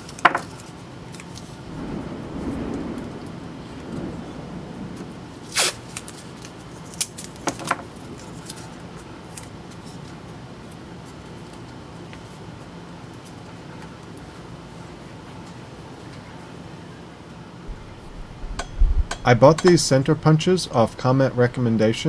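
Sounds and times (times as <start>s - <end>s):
tape crackling: 5.4s - 11.8s
tape ripping: 5.5s - 8.7s
steady low hum: 12.8s - 22.0s.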